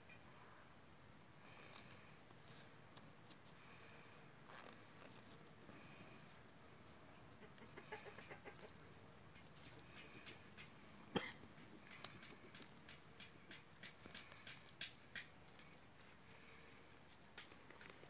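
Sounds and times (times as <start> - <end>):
plastic tape rustling and crackling: 1.4 - 3.7, 4.4 - 6.4, 8.5 - 18.0.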